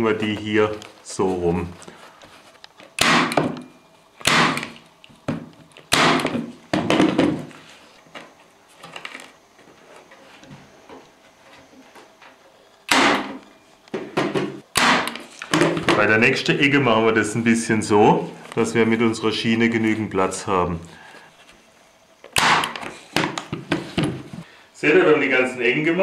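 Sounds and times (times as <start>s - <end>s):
electric staple gun firing: 3.0s - 3.6s, 4.2s - 4.8s, 5.9s - 6.4s, 12.9s - 13.4s, 14.7s - 15.3s, 22.3s - 22.9s.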